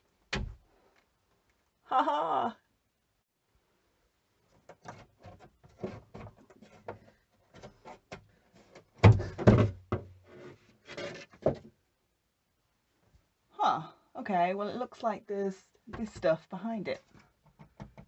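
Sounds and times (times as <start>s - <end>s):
wooden board thumps: 9.0s - 10.2s
wooden clicks and knocks: 17.3s - 18.0s.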